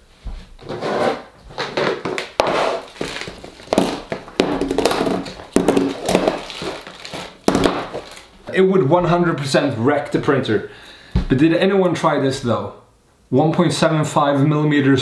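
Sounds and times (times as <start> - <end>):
items clattering in plastic box: 1.6 - 8.4.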